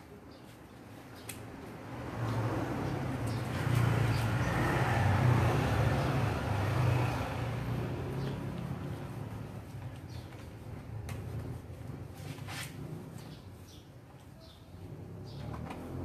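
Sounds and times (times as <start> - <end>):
road noise: 0.0 - 16.0
vehicle engine drone passing: 1.8 - 10.0.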